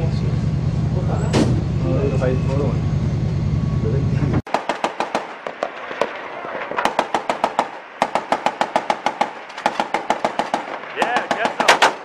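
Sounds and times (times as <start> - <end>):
machine-gun fire bursts: 4.5 - 5.8, 6.8 - 12.0.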